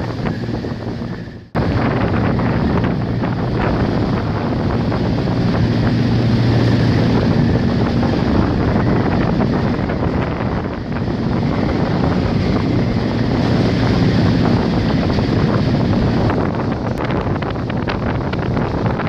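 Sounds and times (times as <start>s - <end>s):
strong wind roaring around buildings: 0.0s - 19.0s
wind buffeting microphone: 0.0s - 19.0s.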